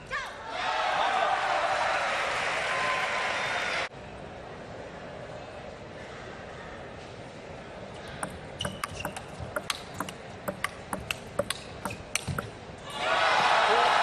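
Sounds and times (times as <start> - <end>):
table tennis ball clicking: 8.1 - 12.6.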